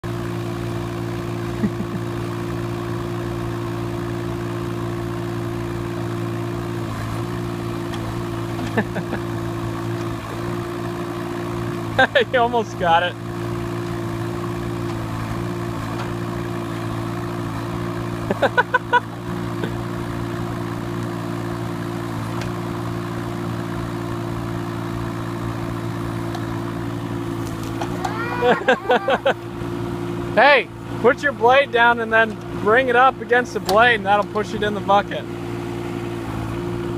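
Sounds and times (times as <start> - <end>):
diesel engine running: 0.0 - 36.9.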